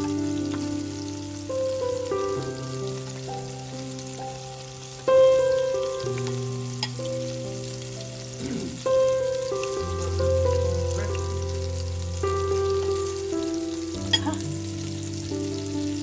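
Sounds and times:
background music of sustained chords: 0.0 - 16.0
fish sizzling in oil: 0.0 - 16.0.

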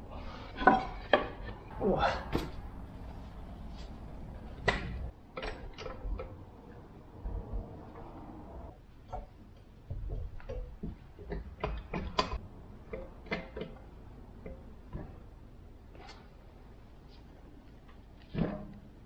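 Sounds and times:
metal clicks and knocks: 4.6 - 6.5, 9.0 - 15.2
low rumble: 6.6 - 8.8.

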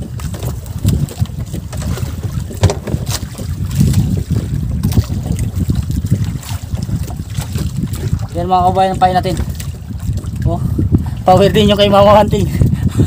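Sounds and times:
wind buffeting microphone: 0.0 - 13.0
sharp knocks: 2.6 - 3.2.

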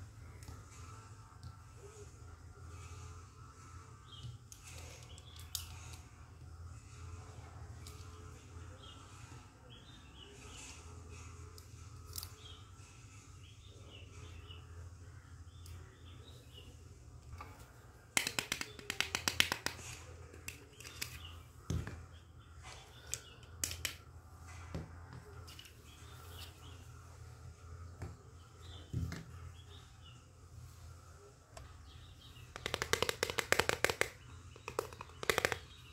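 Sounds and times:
low steady hum: 19.8 - 32.8.

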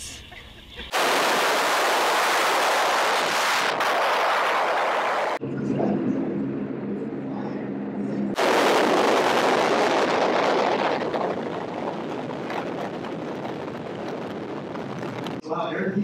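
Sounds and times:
loud wind rushing: 0.9 - 5.5, 6.1 - 15.4
low drone of held tones: 5.4 - 8.4.

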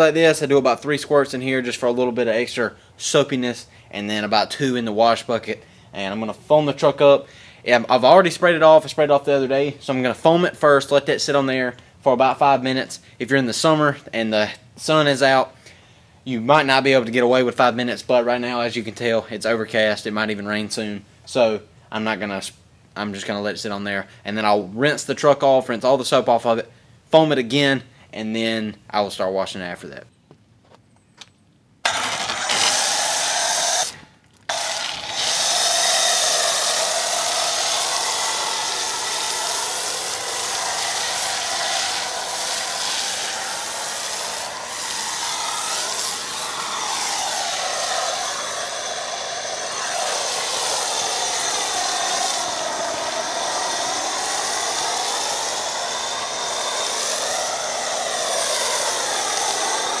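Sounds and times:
motor whining: 31.8 - 60.0
pressure washer spraying: 31.9 - 60.0.

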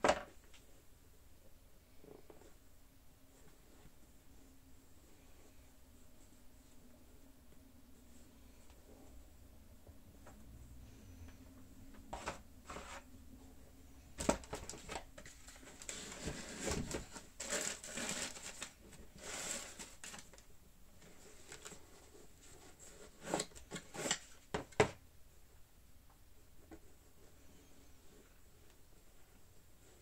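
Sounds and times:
tissue paper crinkling: 15.0 - 20.5.

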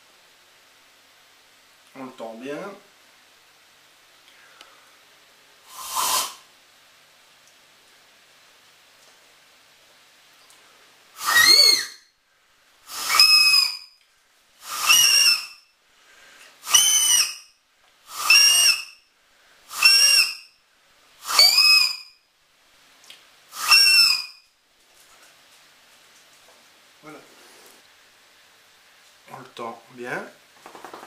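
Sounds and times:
shrill reedy grass whistle squawks: 5.7 - 6.4, 11.2 - 12.1, 12.9 - 14.0, 14.6 - 15.6, 16.6 - 17.5, 18.1 - 19.0, 19.7 - 20.5, 21.2 - 22.2, 23.6 - 24.4.

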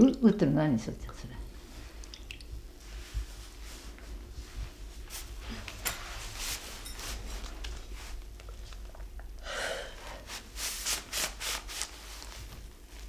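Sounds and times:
low steady hum: 0.0 - 13.0
quiet rustling: 2.7 - 9.1
brush swishing on paper: 2.8 - 8.3, 10.2 - 13.0.

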